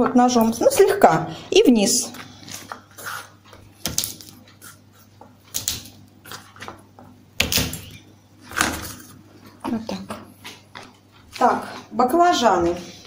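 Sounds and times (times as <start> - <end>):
knife crushing garlic on board: 5.5 - 6.0.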